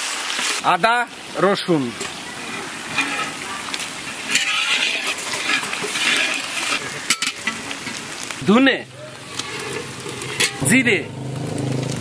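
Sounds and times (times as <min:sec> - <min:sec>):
onions sizzling in oil: 0:00.0 - 0:12.0
spatula stirring in pan: 0:02.0 - 0:08.4, 0:09.2 - 0:10.6.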